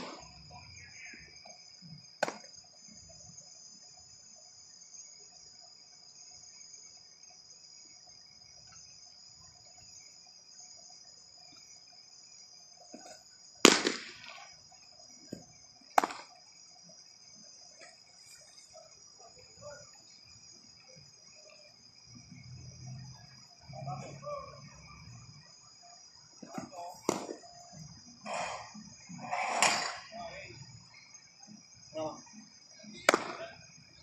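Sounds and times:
crickets chirping: 0.0s - 34.0s
baseball popping into leather mitt: 2.2s - 2.5s, 15.3s - 16.3s, 26.5s - 27.4s, 33.1s - 33.4s.

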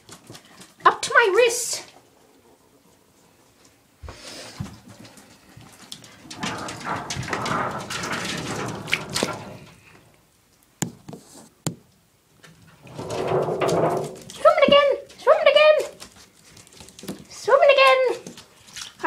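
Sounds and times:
bathwater splashing in a tub: 8.8s - 9.6s, 15.9s - 19.0s.

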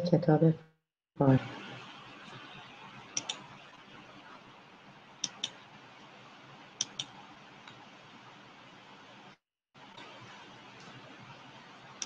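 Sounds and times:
mouse double-clicks: 3.2s - 3.4s, 5.2s - 5.6s, 6.8s - 7.1s.

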